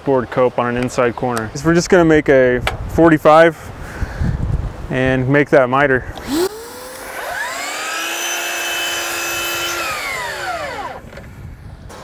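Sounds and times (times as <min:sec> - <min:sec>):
miter saw whining: 0:06.1 - 0:11.3
saw cutting through board: 0:06.2 - 0:11.1.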